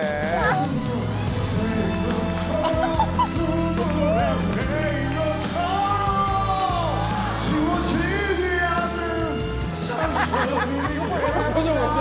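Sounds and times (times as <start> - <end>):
backing track: 0.0 - 12.0
man singing a ballad: 0.0 - 12.0.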